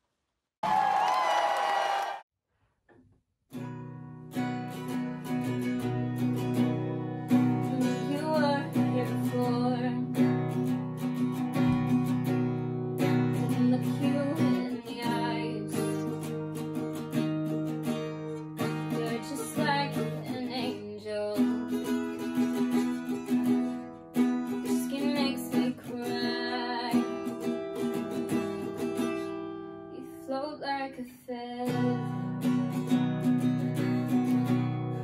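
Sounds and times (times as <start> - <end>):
acoustic guitar strummed chords: 3.6 - 30.0, 31.6 - 35.0
woman singing: 7.3 - 10.4, 13.3 - 16.3, 18.6 - 22.0, 24.5 - 27.5, 29.9 - 32.7.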